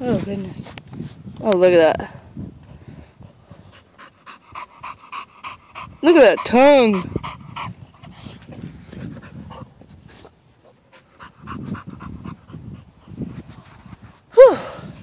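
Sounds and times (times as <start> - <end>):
dog panting: 3.5 - 14.2.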